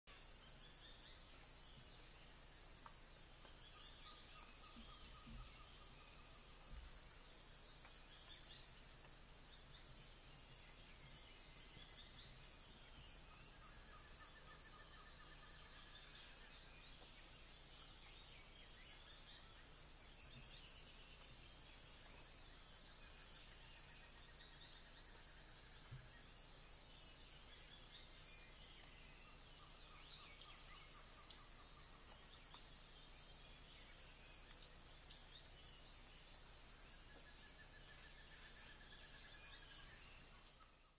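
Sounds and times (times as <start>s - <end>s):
high-pitched insect chorus: 0.1s - 40.9s.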